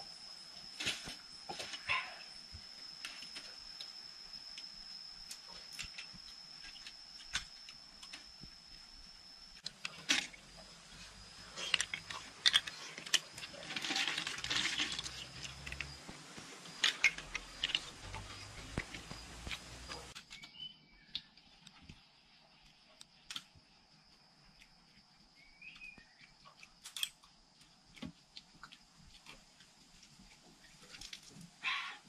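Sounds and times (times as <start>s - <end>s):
thin high-pitched whine: 0.0s - 21.9s
clay roof tiles clinking: 11.4s - 16.0s.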